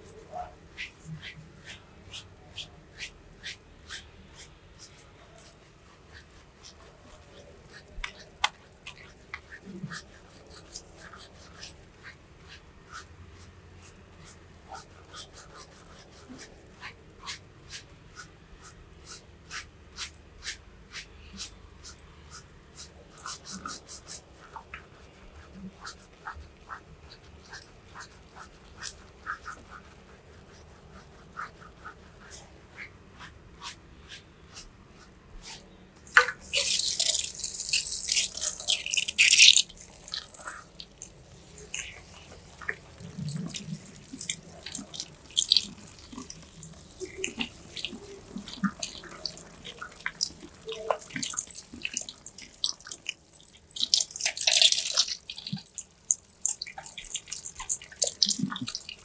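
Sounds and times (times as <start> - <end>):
fingers scrubbing lathered hair: 0.0 - 59.0
water splashes and drips: 5.4 - 13.1, 35.0 - 59.0.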